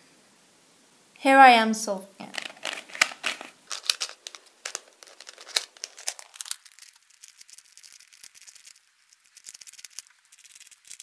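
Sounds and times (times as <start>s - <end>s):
twisty puzzle pieces clicking: 2.3s - 11.0s.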